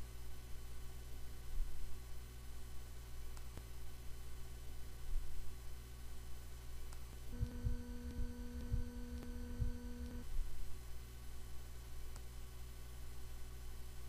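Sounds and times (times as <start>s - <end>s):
low electrical hum: 0.0s - 14.0s
buzzing tone: 7.3s - 10.4s.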